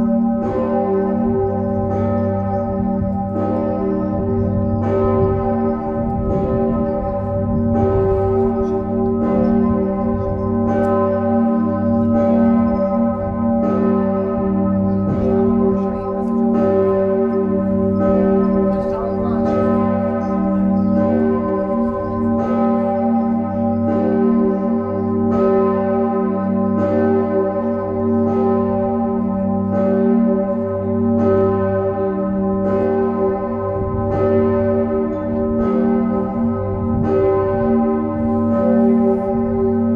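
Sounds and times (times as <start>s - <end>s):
deep bell hum: 0.0s - 25.9s
church bell ringing: 0.0s - 39.9s.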